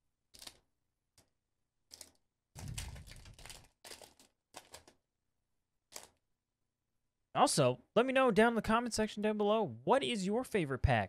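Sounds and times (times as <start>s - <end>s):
foil wrapper crinkling: 2.0s - 4.9s.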